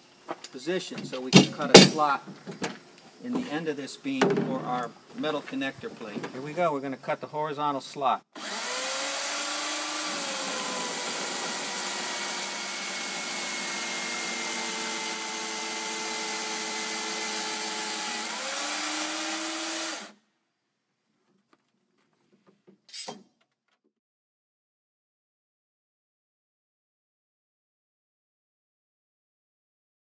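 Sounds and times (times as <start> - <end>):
electric chainsaw cutting wood: 8.4 - 20.2.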